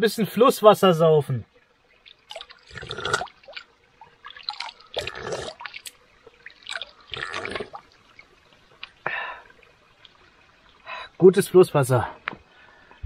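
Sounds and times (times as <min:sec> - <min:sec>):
water dripping and splashing: 0:01.4 - 0:13.0
slurping water from hand: 0:02.0 - 0:08.0
water scooped by hand: 0:02.0 - 0:08.2.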